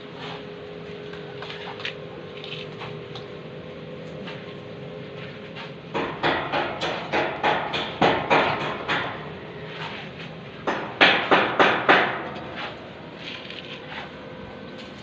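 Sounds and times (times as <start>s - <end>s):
tool scraping mix in bucket: 1.4s - 3.0s, 12.5s - 14.2s.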